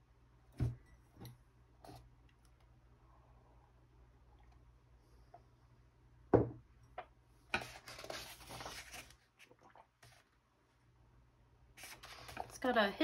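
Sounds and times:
mug knocking on countertop: 6.3 - 6.6
page rustling: 7.6 - 9.2.

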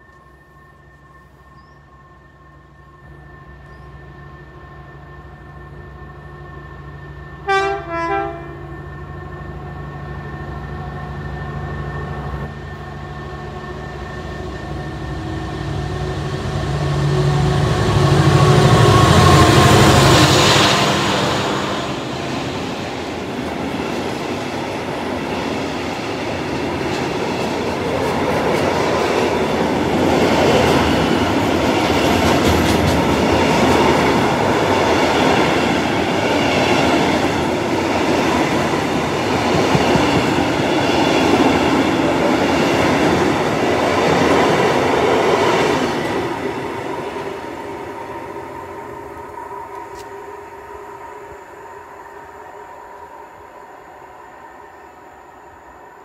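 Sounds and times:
freight train wheels clattering: 19.0 - 46.2.

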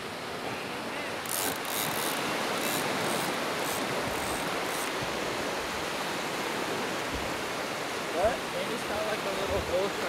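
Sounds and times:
surf: 0.0 - 10.0
wind: 0.0 - 10.0
fishing reel spurts: 1.2 - 4.9.

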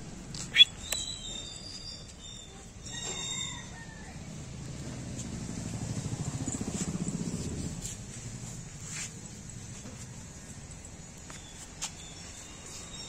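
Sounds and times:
rooster crowing: 2.8 - 4.5.

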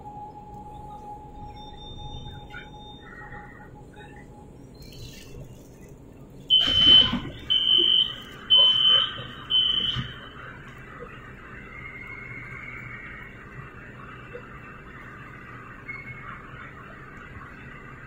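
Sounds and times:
train door warning beeps: 0.0 - 4.6, 6.5 - 11.1.

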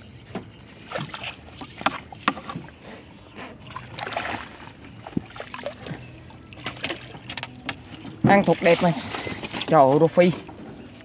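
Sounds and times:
fish splashing in water: 0.7 - 2.8, 3.6 - 7.3.

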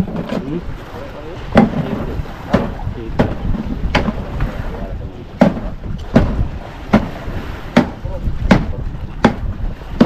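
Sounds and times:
boat engine low rumble: 0.0 - 10.0
wind noise on microphone: 0.0 - 10.0
sharp repeating knock: 5.4 - 7.2, 7.8 - 9.5.

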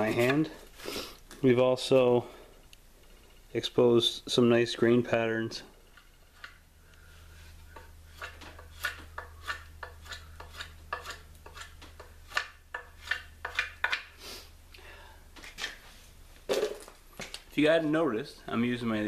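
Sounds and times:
knife scraping wood: 7.7 - 14.1.

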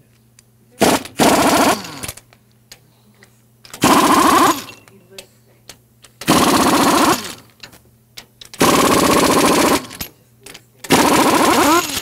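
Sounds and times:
pneumatic impact wrench hammering: 0.8 - 2.2, 3.7 - 4.8, 6.1 - 10.1, 10.9 - 12.0
tool winding down whine: 3.8 - 4.7, 6.3 - 7.4, 8.6 - 10.0, 10.9 - 12.0.

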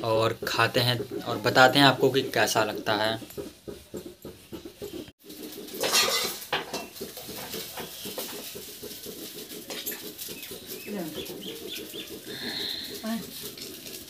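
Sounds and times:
ladle clattering on steel: 2.4 - 14.0
oil frying sizzle: 5.2 - 9.8.

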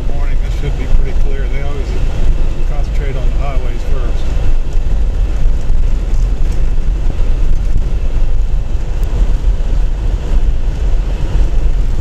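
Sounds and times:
car cabin low rumble: 0.0 - 12.0.

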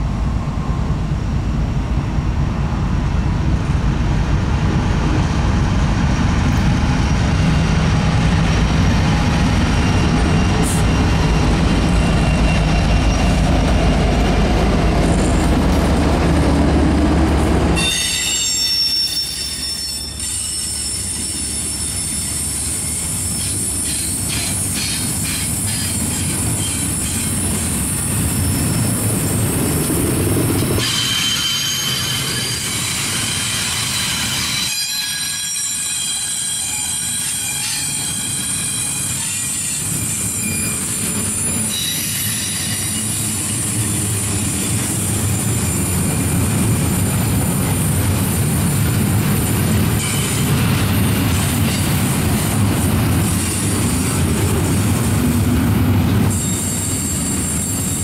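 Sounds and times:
diesel locomotive engine drone: 0.0 - 58.0
train wheels clickety-clack: 4.0 - 18.9, 19.5 - 58.0
train wheels squealing: 9.0 - 13.9, 17.8 - 29.4, 30.6 - 48.0, 49.4 - 52.0, 56.3 - 58.0.

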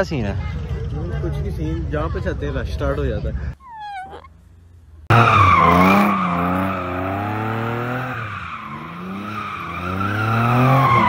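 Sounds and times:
car engine revving: 5.0 - 11.0.

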